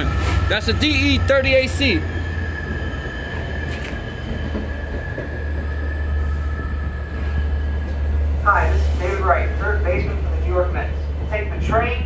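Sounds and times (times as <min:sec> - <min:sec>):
train wheel squeal: 0:00.0 - 0:08.1
train rolling rumble: 0:00.0 - 0:12.0.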